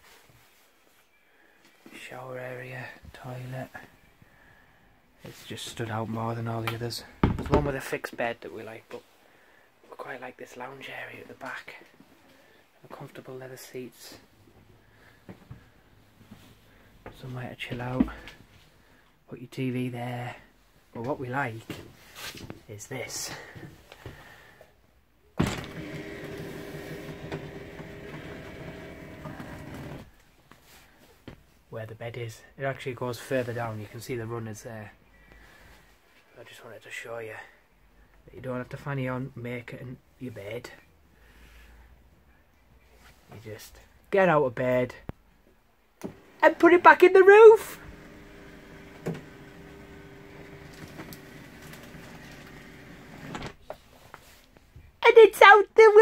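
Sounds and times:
bed lift motor click: 25.4s - 30.0s
electric motor whirring: 25.5s - 30.1s, 47.8s - 53.4s.

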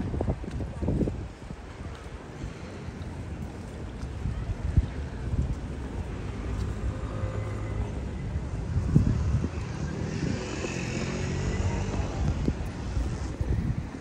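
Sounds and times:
low rumble of city traffic: 0.0s - 14.0s
motor vehicle passing: 6.8s - 14.0s.

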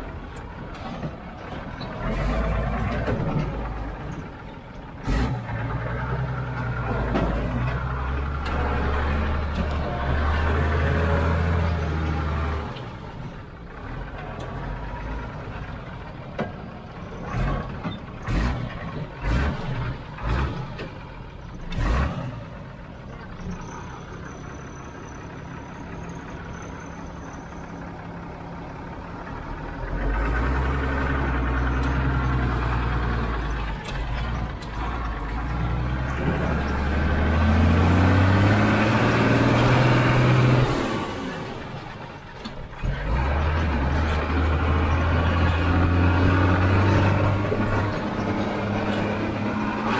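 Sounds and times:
truck diesel engine: 0.0s - 49.9s.

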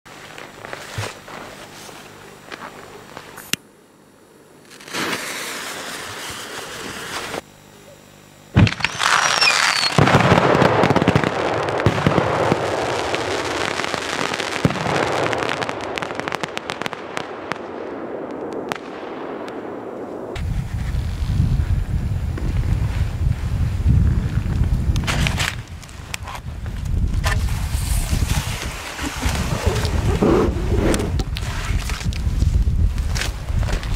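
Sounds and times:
firework stars crackling: 4.5s - 7.6s, 8.3s - 33.9s
firework fuse hissing: 4.6s - 7.4s, 8.5s - 17.0s, 19.9s - 33.9s
wind rumble on microphone: 20.3s - 33.9s.

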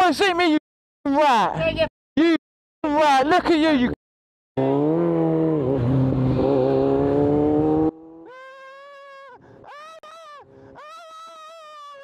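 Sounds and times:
engine revving loudly: 4.6s - 8.2s.

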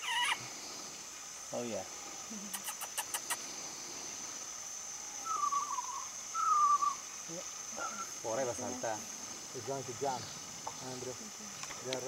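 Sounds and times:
high-pitched insect drone: 0.0s - 12.0s
falling whistled animal calls: 5.2s - 7.0s.

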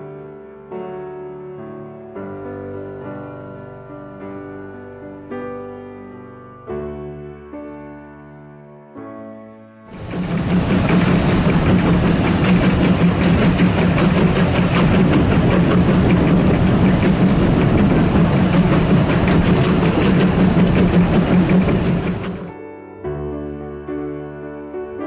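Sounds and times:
steam locomotive beats: 9.9s - 22.6s
train rumble: 9.9s - 22.6s.

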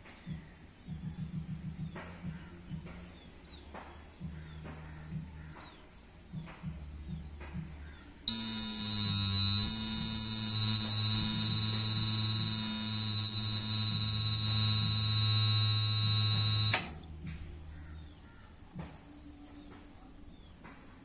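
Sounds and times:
high-pitched buzzer alarm tone: 8.3s - 16.9s.

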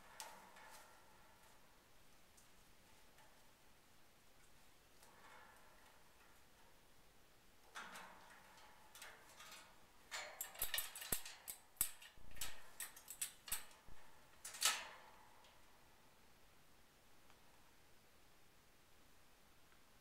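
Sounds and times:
parrot clicking on metal cage: 7.7s - 15.6s.

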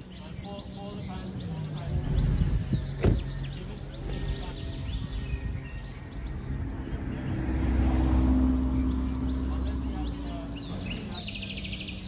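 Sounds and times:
car door shutting: 2.4s - 3.5s.

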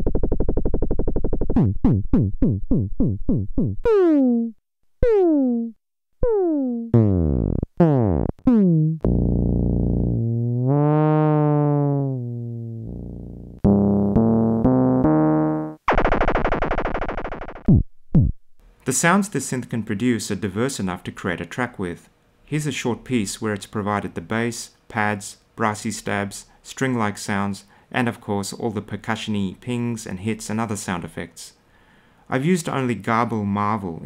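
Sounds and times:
long pitch-bending synth tone: 0.0s - 16.5s
buzzy synthesizer tones: 0.0s - 18.3s
stepped synth notes: 1.5s - 16.5s
fast repeated synth plucks: 1.6s - 9.2s, 13.6s - 16.5s.

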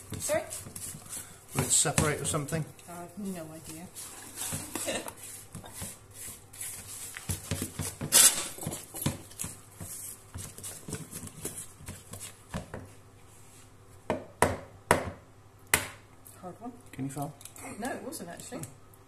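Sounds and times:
spatula scraping batter in bowl: 0.2s - 2.7s, 3.6s - 12.7s.

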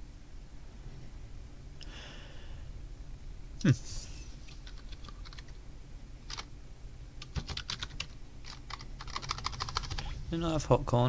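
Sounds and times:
typing on computer keyboard: 4.6s - 5.6s, 6.3s - 6.5s, 7.2s - 10.0s.

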